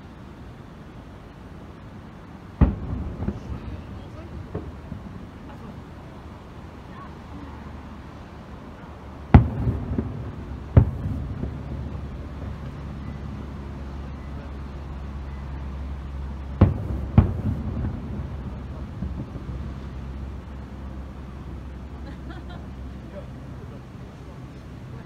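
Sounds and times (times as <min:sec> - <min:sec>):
low background drone: 0:00.0 - 0:25.0
firework shells booming: 0:02.6 - 0:06.5, 0:09.3 - 0:14.3, 0:16.4 - 0:20.8
rumbling echo: 0:02.6 - 0:06.8, 0:09.2 - 0:13.8, 0:16.4 - 0:21.8.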